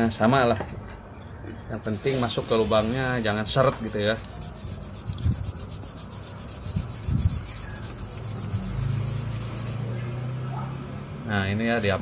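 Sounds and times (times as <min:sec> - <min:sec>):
rubbing on sandpaper: 0:01.8 - 0:09.9.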